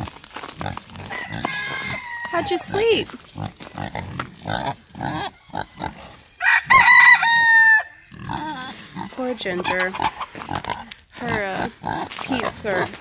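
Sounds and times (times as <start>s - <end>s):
pigs grunting: 0.0s - 6.3s, 8.0s - 13.0s
rooster crowing: 1.0s - 2.7s, 5.3s - 8.0s.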